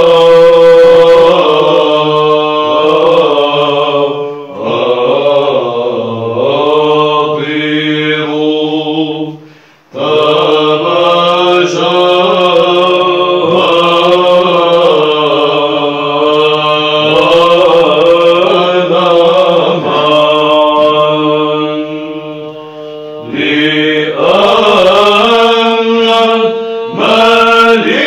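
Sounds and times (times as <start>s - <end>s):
men chanting a hymn: 0.0s - 28.0s
low held drone note: 19.5s - 28.0s.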